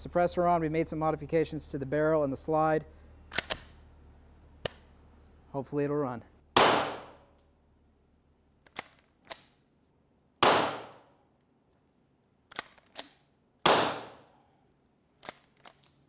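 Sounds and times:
pistol slide racking clicks: 0:03.3 - 0:03.8, 0:08.6 - 0:09.6, 0:12.5 - 0:13.3, 0:15.2 - 0:16.0
suppressed pistol shots: 0:06.6 - 0:07.2, 0:10.4 - 0:11.1, 0:12.6 - 0:14.3.

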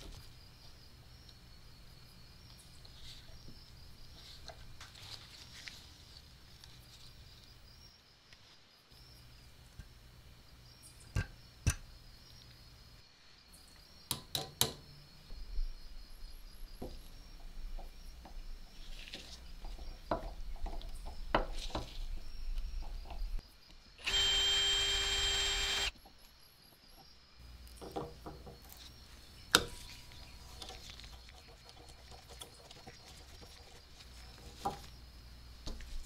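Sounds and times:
drill grinding into metal: 0:24.0 - 0:25.9.

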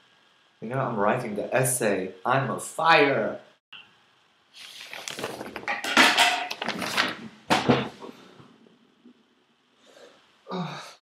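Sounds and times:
person rustling and knocking at desk: 0:05.0 - 0:08.2.

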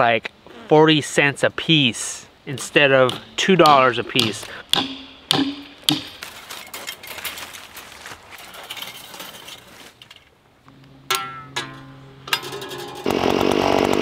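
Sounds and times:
sharp metallic knocks: 0:02.6 - 0:06.4, 0:11.0 - 0:13.1
wire clinking and rattling: 0:05.6 - 0:10.4.

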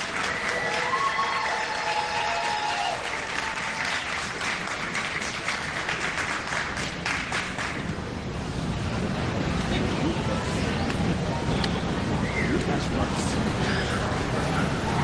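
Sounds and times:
crowd cheer or shout: 0:00.0 - 0:03.9
crowd applauding: 0:00.0 - 0:08.1.

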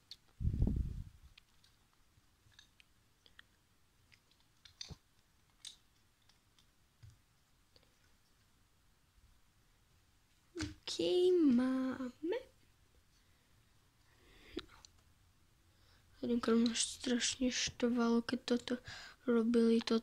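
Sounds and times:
plastic bricks clicking and tapping: 0:04.1 - 0:07.2, 0:19.7 - 0:20.0.

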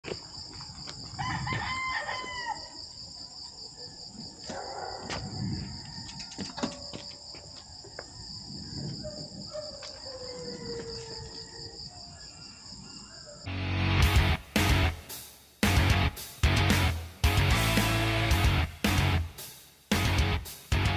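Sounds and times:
rooster crowing: 0:01.2 - 0:02.8, 0:05.3 - 0:07.0, 0:07.9 - 0:11.8.

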